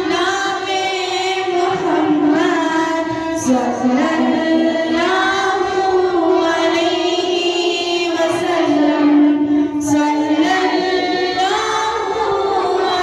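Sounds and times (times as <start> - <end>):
girl singing devotional song: 0.0 - 13.0.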